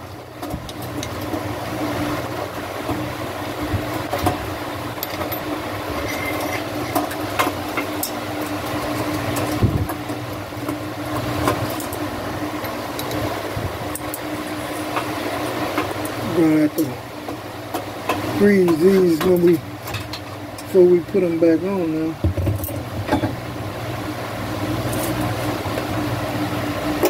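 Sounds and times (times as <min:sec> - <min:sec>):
steady mechanical hum: 0:00.0 - 0:27.0.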